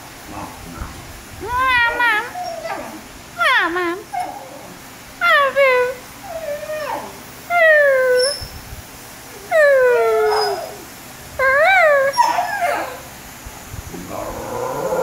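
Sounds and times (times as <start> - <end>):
dog howling: 1.4 - 8.4, 9.3 - 13.1, 14.1 - 15.0.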